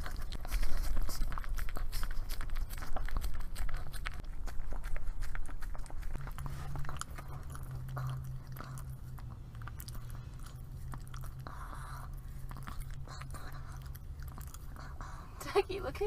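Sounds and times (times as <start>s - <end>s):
dog licking lips: 0.0s - 15.8s
steady low hum: 0.0s - 16.0s.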